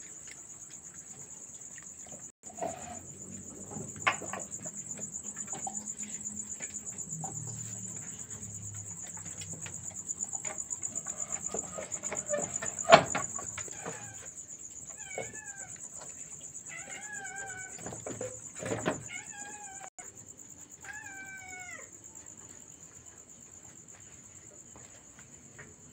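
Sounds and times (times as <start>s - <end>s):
crickets chirping: 0.0s - 25.9s
cat meowing: 20.8s - 21.9s.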